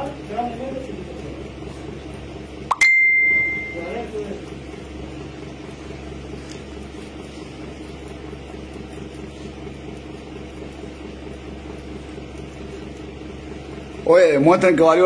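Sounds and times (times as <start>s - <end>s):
low mechanical hum: 0.0s - 15.0s.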